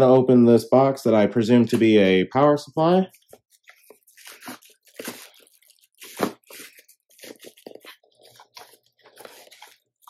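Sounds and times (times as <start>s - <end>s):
cardboard scraping: 3.1s - 10.0s
plastic bag crinkling: 3.2s - 10.0s.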